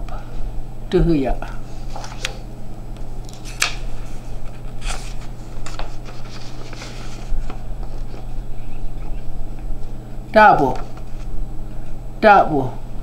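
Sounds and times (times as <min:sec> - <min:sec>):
steady low hum: 0:00.0 - 0:13.0
paper sheets rustling: 0:01.7 - 0:02.4, 0:03.2 - 0:08.4, 0:10.7 - 0:11.3.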